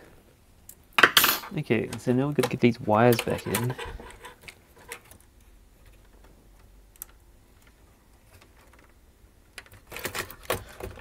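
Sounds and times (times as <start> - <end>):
clicks and taps of plastic parts: 1.8 - 5.3.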